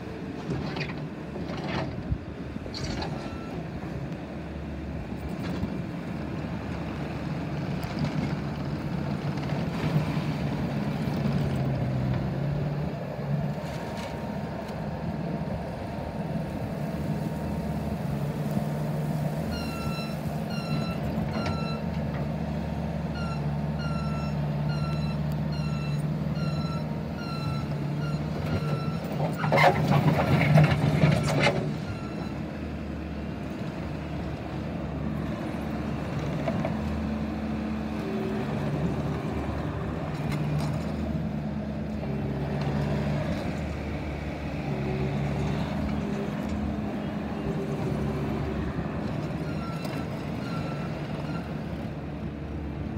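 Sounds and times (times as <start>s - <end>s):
reversing alarm beeping: 3.1s - 3.6s, 19.5s - 21.9s, 23.1s - 29.6s, 31.8s - 32.4s, 49.4s - 51.7s.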